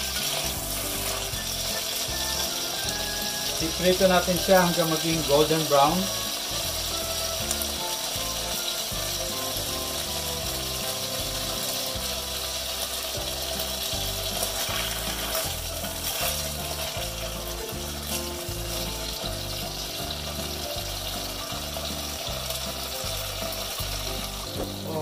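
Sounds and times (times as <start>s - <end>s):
spatula scraping a pot: 0.0s - 2.7s, 14.3s - 19.2s
background music: 0.0s - 25.0s
potatoes sizzling in oil: 0.0s - 25.0s.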